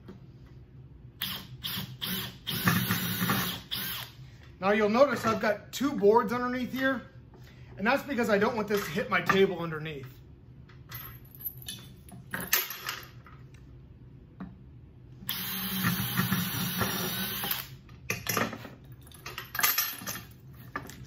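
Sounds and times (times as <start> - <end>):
cordless drill boring wood: 1.2 - 4.1, 15.3 - 17.7.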